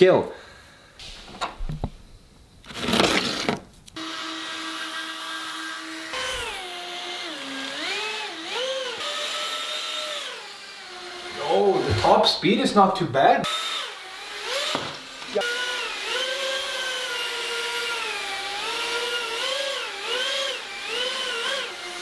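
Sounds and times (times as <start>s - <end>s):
electric fans whining: 3.5s - 13.2s.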